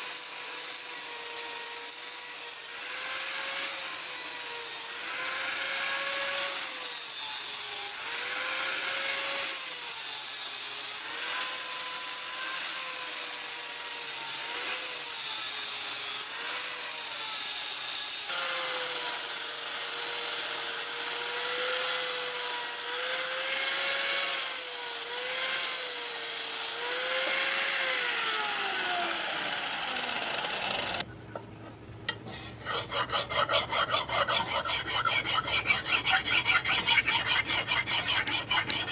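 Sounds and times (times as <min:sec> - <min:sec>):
angle grinder grinding steel: 0:32.1 - 0:38.9
hand file rasping on metal: 0:32.2 - 0:38.9.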